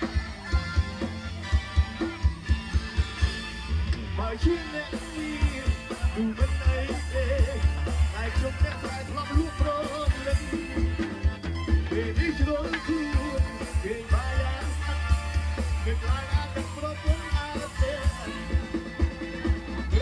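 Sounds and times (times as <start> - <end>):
heavy bass drum beat: 0.0 - 20.0
live pop music: 0.0 - 20.0
person singing: 4.2 - 11.0, 11.8 - 20.0.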